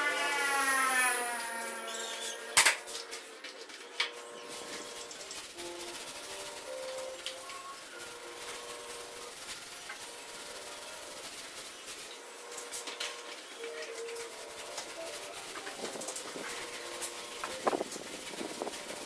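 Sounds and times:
roller rolling in paint tray: 0.0 - 19.0
paint roller rubbing on wall: 4.3 - 19.0.

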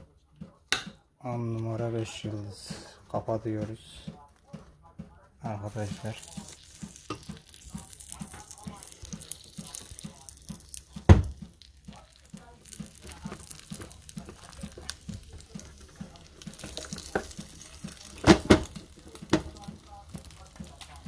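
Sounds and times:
cheese toast sizzling in toaster: 5.7 - 21.0.

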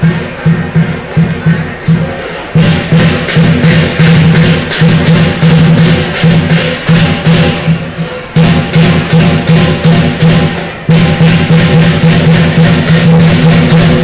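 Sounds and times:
big drum beating: 0.0 - 14.0
cymbals clashing: 0.0 - 14.0.

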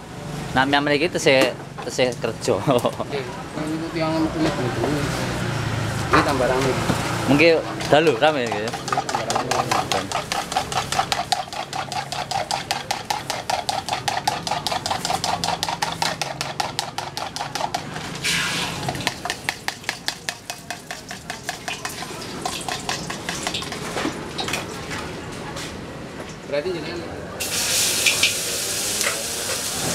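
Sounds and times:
oil sizzling: 7.3 - 24.4, 27.4 - 29.9
spatula clattering on wok: 7.7 - 17.9.

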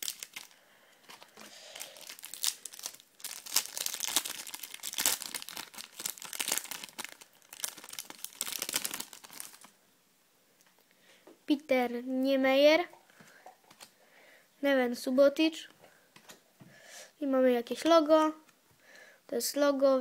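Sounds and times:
foil card pack crinkling and tearing: 0.0 - 9.7
wrapper rustling: 0.0 - 9.8.

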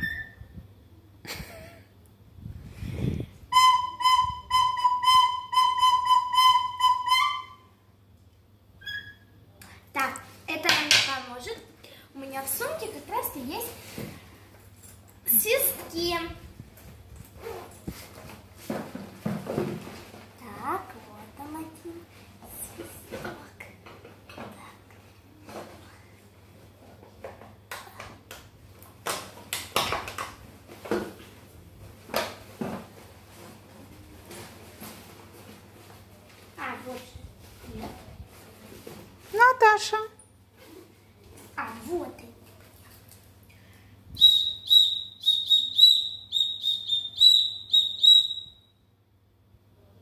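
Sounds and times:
faint steady hum: 0.0 - 29.6
toy whistle short high toots: 3.5 - 7.6, 8.8 - 9.2, 44.2 - 48.7.

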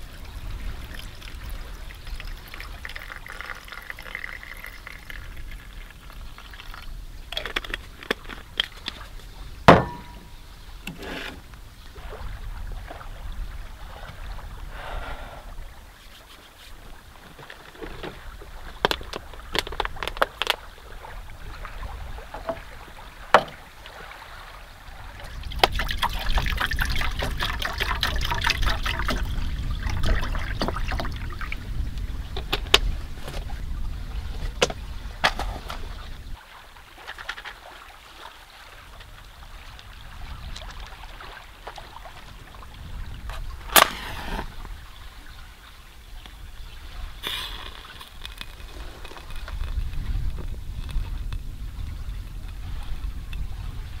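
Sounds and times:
water trickling and pouring: 0.0 - 9.2, 16.7 - 32.6.

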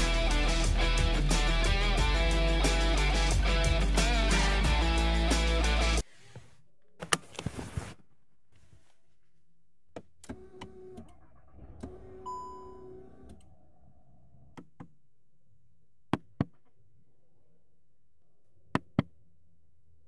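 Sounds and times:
electronic beep: 12.3 - 12.8.

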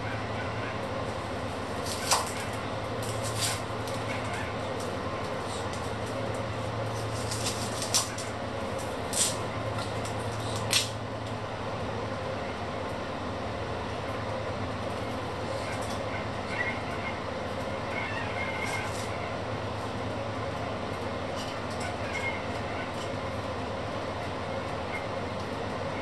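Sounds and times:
background rumble with low hum: 0.0 - 26.0.

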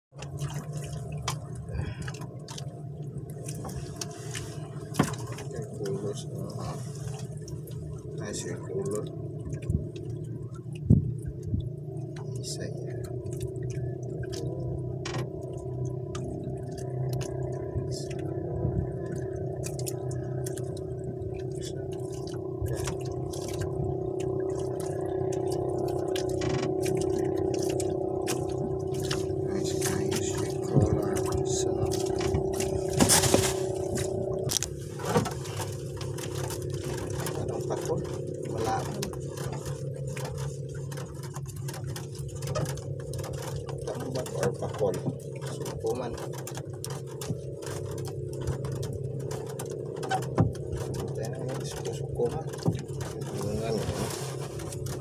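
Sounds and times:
steady low hum: 0.1 - 55.0
water sloshing and dripping: 0.1 - 55.0
wet line hauled in by hand: 27.4 - 55.0.

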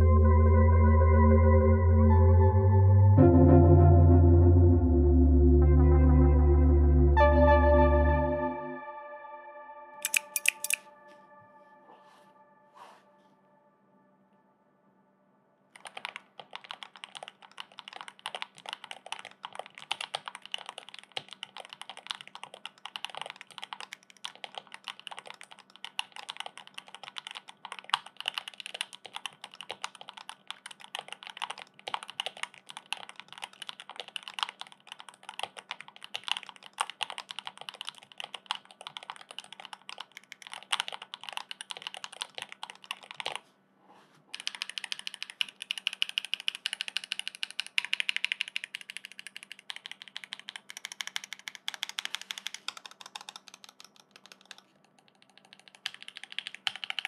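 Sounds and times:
mechanical keyboard typing: 10.0 - 10.9, 15.8 - 43.4, 44.3 - 57.0.

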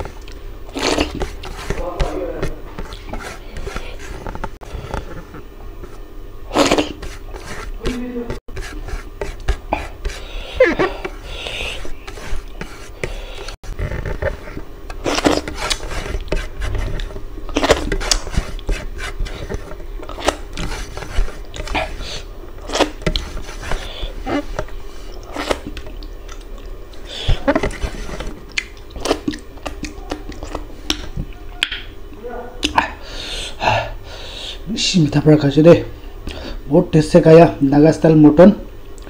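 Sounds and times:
fingers scraping a plate: 0.8 - 6.0, 6.6 - 25.8, 27.0 - 28.4
chewing and lip-smacking: 22.6 - 31.9.

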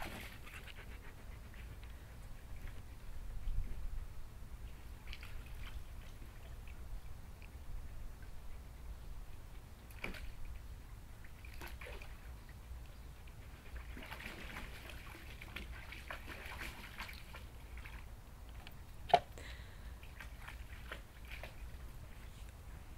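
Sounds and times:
dog splashing water: 0.0 - 0.7, 5.0 - 6.8, 9.9 - 12.4, 13.6 - 18.1, 20.0 - 21.8.

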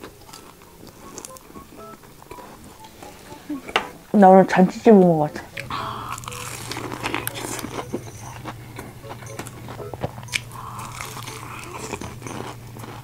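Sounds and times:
crunchy chewing of fried chicken: 0.0 - 2.8, 5.6 - 13.0.

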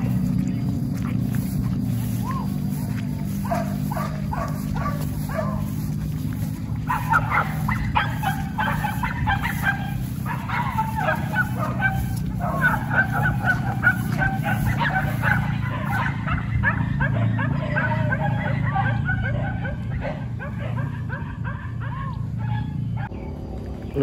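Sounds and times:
low rumble: 0.0 - 17.2
dogs barking and yelping: 0.0 - 23.2.

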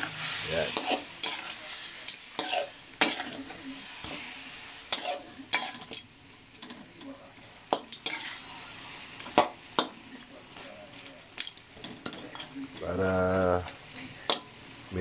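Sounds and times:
metal spatula scraping a pan: 0.0 - 6.0, 7.7 - 9.9
chicken sizzling in a wok: 0.0 - 15.0.

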